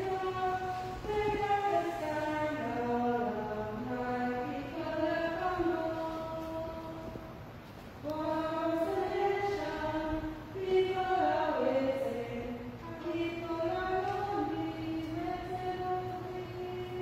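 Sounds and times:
woman singing a hymn: 0.0 - 17.0.

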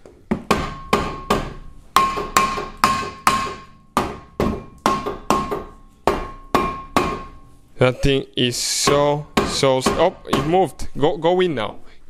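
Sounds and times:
rubber mallet striking brake rotor: 0.3 - 7.4.

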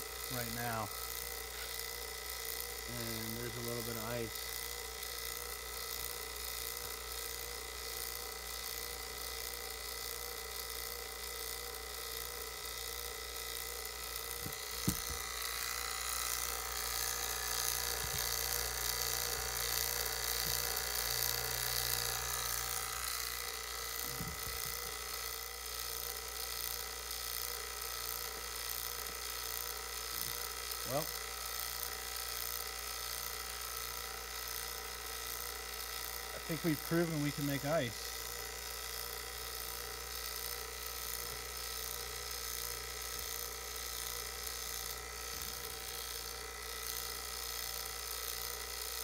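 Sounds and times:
vacuum pump motor whining: 0.0 - 49.0.

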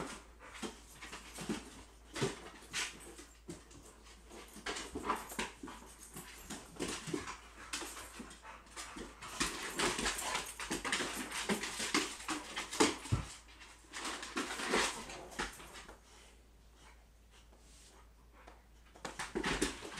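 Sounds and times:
dogs scuffling: 0.0 - 18.1, 18.8 - 19.9
paws scrabbling on hardwood floor: 0.0 - 19.9.

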